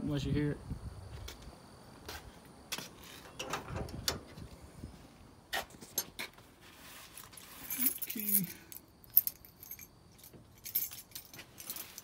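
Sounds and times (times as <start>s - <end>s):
door latch clicks and clunks: 3.3s - 4.4s.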